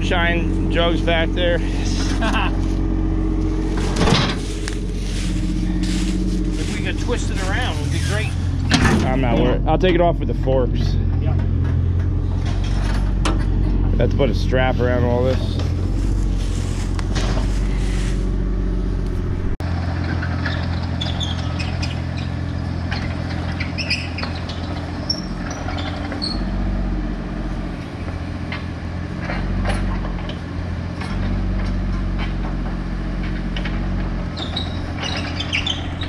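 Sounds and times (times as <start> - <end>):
heavy engine running: 0.0 - 36.0
short squeaks and clicks: 20.0 - 26.6, 33.3 - 36.0.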